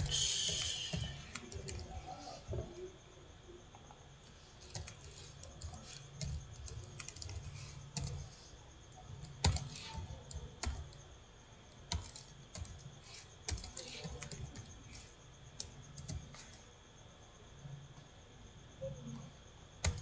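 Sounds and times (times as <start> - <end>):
computer keyboard typing: 0.5 - 2.0, 4.6 - 8.4, 9.1 - 11.0, 11.8 - 16.6, 19.8 - 20.0.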